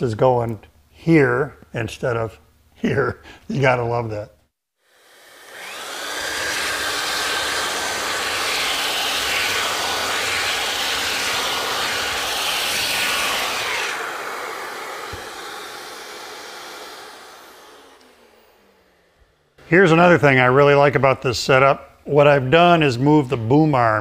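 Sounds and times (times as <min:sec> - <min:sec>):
belt sander on wood: 0:04.8 - 0:19.6
vacuum hose drawing dust: 0:04.9 - 0:19.4.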